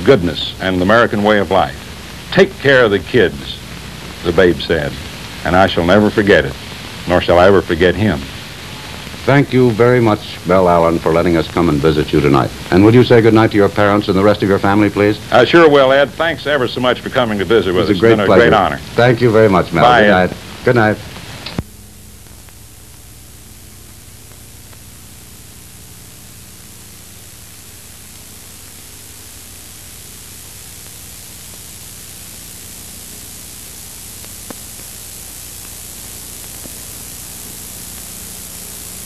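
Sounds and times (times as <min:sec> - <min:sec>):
recording hiss and static: 0:00.0 - 0:39.0
faint click: 0:21.2 - 0:23.0, 0:34.2 - 0:35.0.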